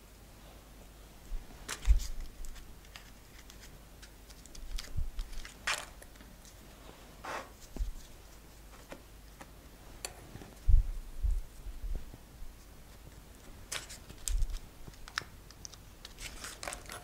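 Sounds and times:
aluminium foil crinkling: 1.6s - 6.7s, 12.9s - 17.0s.

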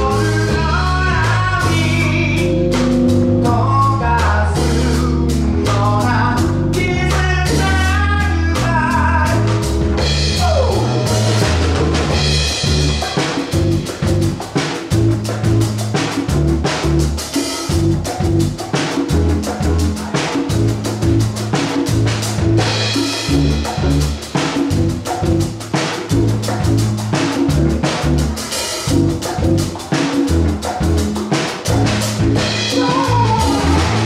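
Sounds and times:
live soul band playing: 0.0s - 34.0s.

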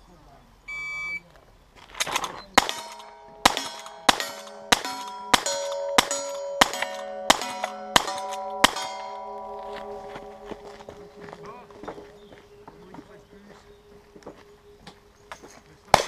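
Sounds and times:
rifle shots: 2.0s - 9.3s
steel targets ringing: 2.6s - 12.3s.

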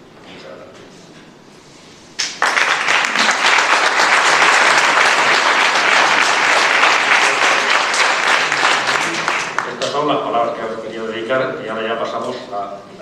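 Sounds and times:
audience applauding: 2.2s - 10.1s.

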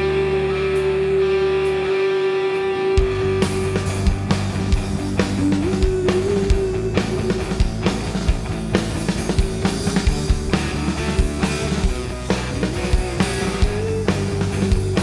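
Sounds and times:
live rock band playing: 0.0s - 15.0s
drum kit beating: 3.0s - 15.0s.

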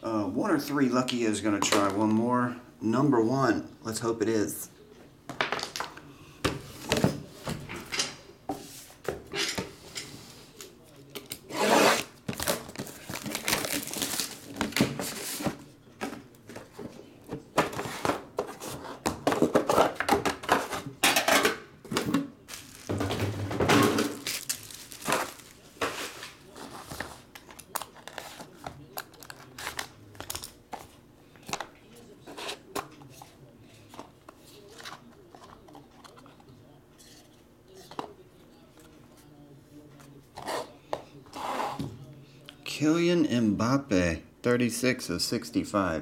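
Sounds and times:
packaging swishing: 22.5s - 23.0s, 24.1s - 26.2s.

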